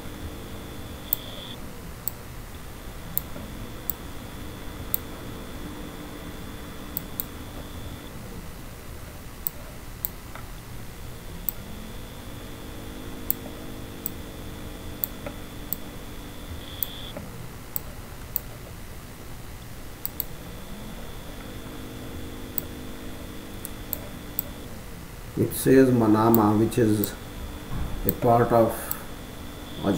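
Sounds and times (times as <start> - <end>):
faint low hum: 0.0 - 29.9
computer mouse clicks: 1.0 - 2.2, 6.8 - 7.8, 9.4 - 10.5, 12.5 - 14.2, 14.9 - 15.9, 16.6 - 18.8, 20.0 - 20.4, 26.3 - 27.2, 28.0 - 29.0.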